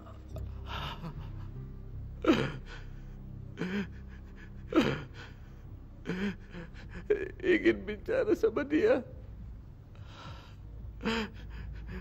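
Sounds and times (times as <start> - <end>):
man sobbing: 0.0 - 9.0.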